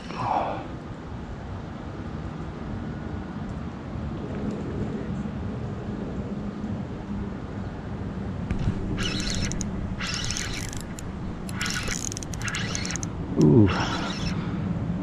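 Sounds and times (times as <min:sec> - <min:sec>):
steady low rumble: 0:08.4 - 0:15.0
fishing reel whirring: 0:08.5 - 0:14.4.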